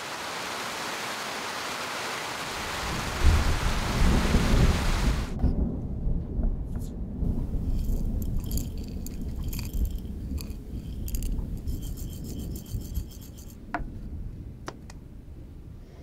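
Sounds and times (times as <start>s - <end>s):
dry tea rattling in glass jar: 7.4s - 13.6s
sharp clinks: 7.7s - 13.6s.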